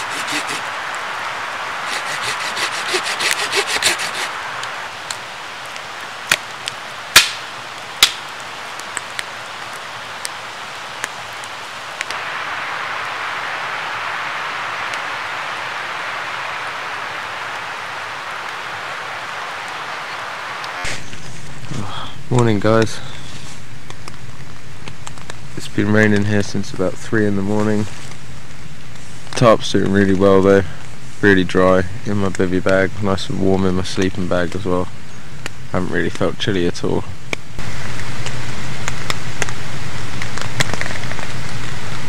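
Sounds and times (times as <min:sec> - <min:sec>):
rhythmic scraping: 0:00.0 - 0:00.6, 0:01.8 - 0:04.3
river and waterfall rushing: 0:00.0 - 0:06.2, 0:12.0 - 0:20.9
campfire crackling and popping: 0:00.0 - 0:42.0.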